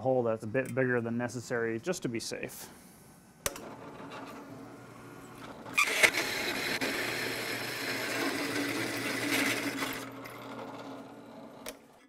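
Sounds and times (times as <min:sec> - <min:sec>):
drill press motor hum: 0:03.5 - 0:12.0
hole saw grinding metal: 0:05.7 - 0:11.2.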